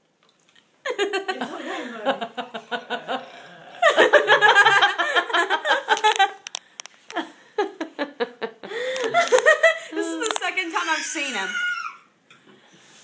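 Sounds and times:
woman laughing hard: 0.9s - 6.4s, 7.1s - 10.3s.

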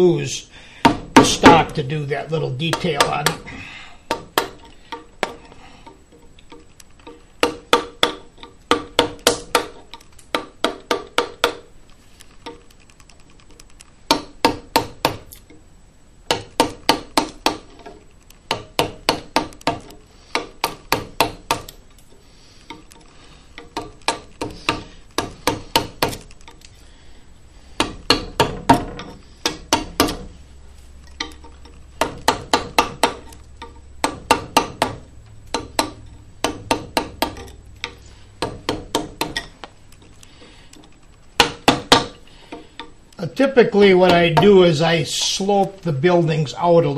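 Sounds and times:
mallet knocking on chisel: 7.1s - 11.7s, 14.1s - 15.2s, 16.3s - 21.7s, 23.6s - 26.2s, 27.8s - 30.3s, 32.0s - 39.5s, 41.4s - 42.1s, 44.1s - 44.6s.

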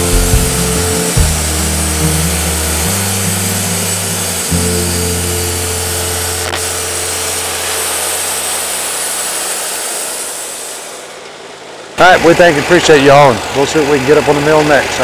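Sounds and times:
low hums changing pitch: 0.0s - 11.1s
sawmill running: 0.0s - 15.0s.

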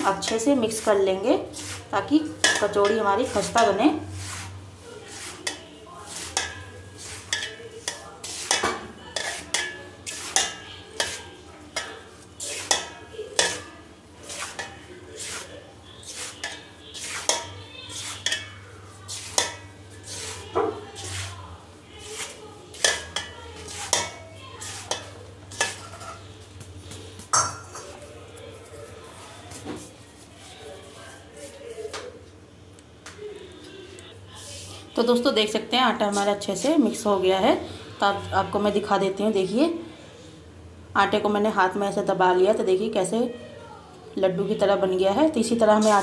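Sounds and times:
hands rubbing flour in a bowl: 0.0s - 8.6s, 9.2s - 27.3s, 28.0s - 32.0s, 36.0s - 36.8s, 45.6s - 46.0s.

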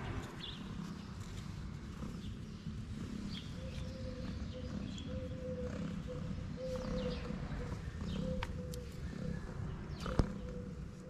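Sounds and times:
cat purring: 0.0s - 11.0s.

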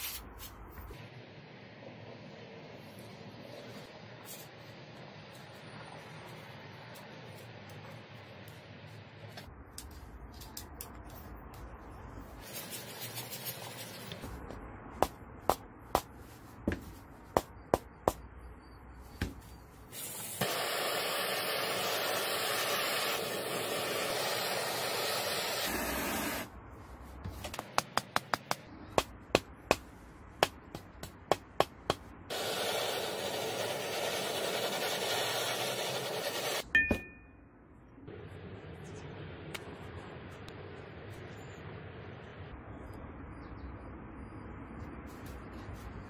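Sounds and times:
blowtorch flame hissing: 19.9s - 26.5s, 32.3s - 36.6s.

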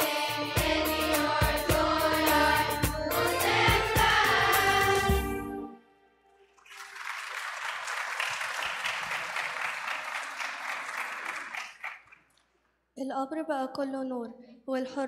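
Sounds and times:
choir singing: 0.0s - 5.8s
audience applauding: 6.4s - 12.4s.

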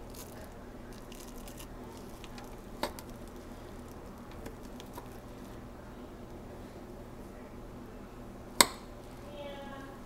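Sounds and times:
spoon scooping dough off plastic wrap: 0.0s - 5.6s
low steady hum: 0.0s - 10.0s.

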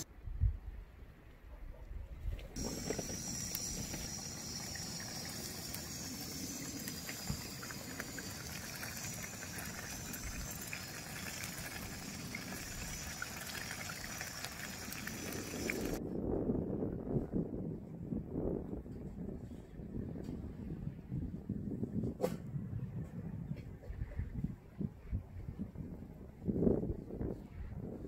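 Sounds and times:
water trickling: 2.6s - 16.0s.

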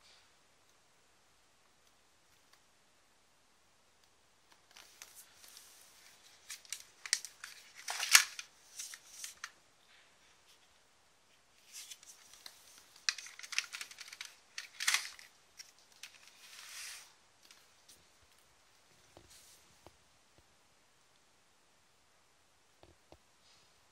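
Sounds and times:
plastic toys clicking and rustling: 6.4s - 9.5s, 12.1s - 17.6s.

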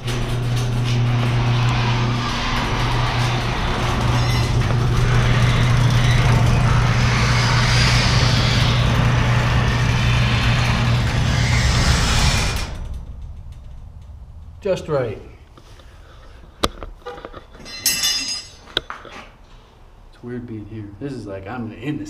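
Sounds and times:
garage door opener motor hum: 0.0s - 14.6s
door moving along tracks: 0.0s - 18.1s.

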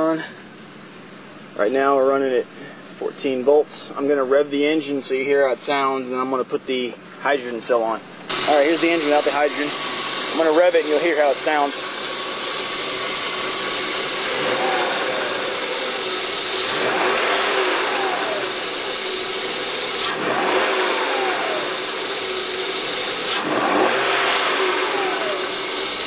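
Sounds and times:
car engine idling and revving: 0.0s - 7.2s, 8.0s - 26.0s.

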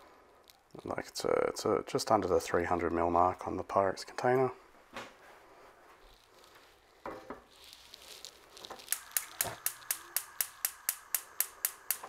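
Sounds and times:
gas spark igniter ticking: 8.9s - 12.0s.

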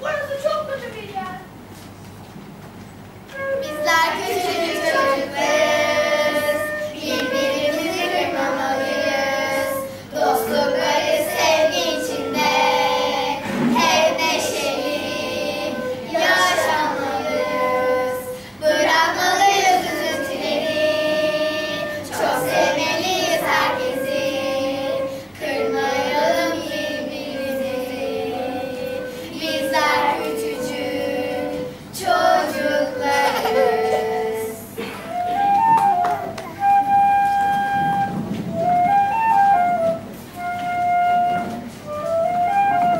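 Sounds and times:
flute playing: 3.3s - 42.9s
children singing: 3.6s - 34.9s.

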